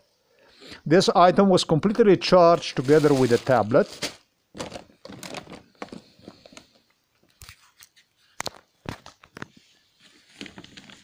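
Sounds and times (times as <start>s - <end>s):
fabric rustling and crinkling: 2.5s - 6.9s, 8.9s - 11.0s.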